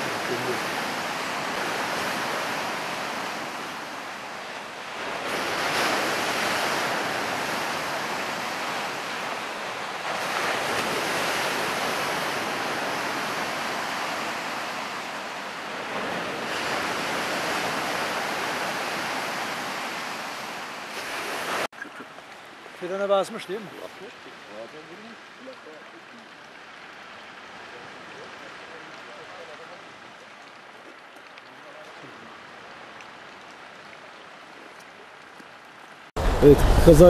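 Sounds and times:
surf breaking on stony shore: 0.0s - 22.0s, 36.2s - 37.0s.

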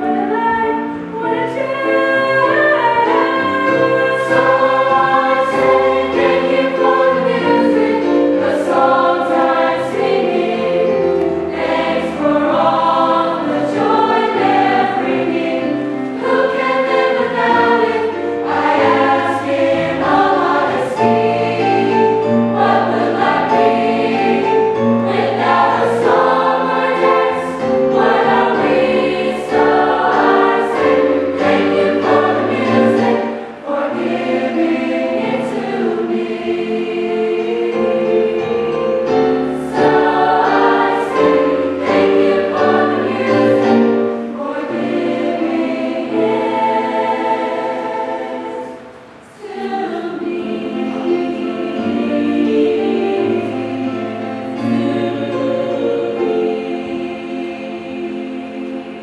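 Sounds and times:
choir singing in harmony: 0.0s - 59.0s.

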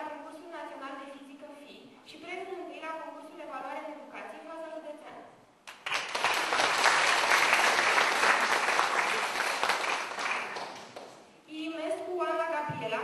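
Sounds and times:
audience applauding: 5.7s - 11.2s.

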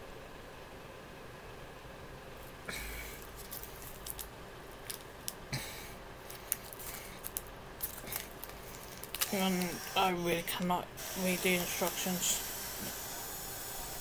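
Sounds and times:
plastic wrapper crinkling: 3.2s - 5.4s, 6.2s - 10.7s
plastic wrapper rustles: 3.2s - 5.4s, 6.2s - 10.7s.

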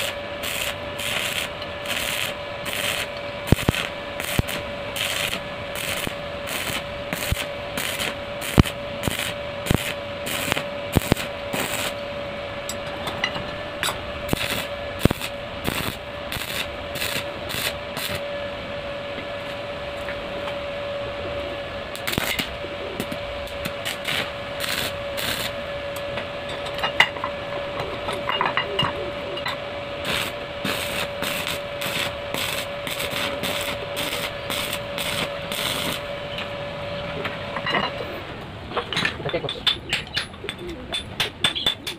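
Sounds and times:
welding arc crackling: 0.0s - 12.1s, 13.7s - 18.2s, 21.8s - 25.7s, 30.0s - 36.5s
steady hum: 0.0s - 41.9s.

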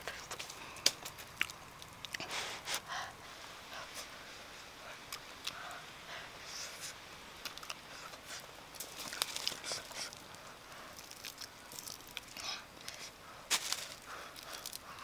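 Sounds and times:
charred skin crackling: 0.0s - 3.0s, 6.4s - 15.0s.

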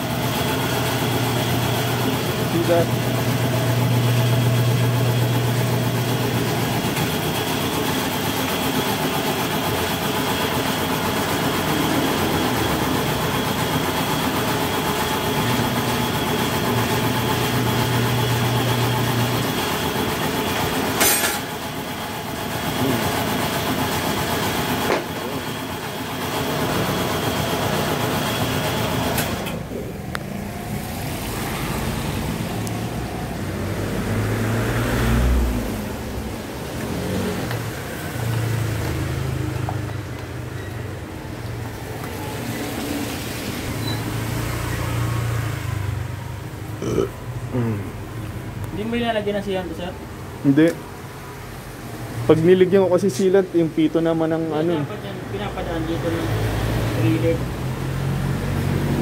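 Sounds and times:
electric turntable motor humming: 0.0s - 21.0s
mechanical shop noise: 0.0s - 46.6s.

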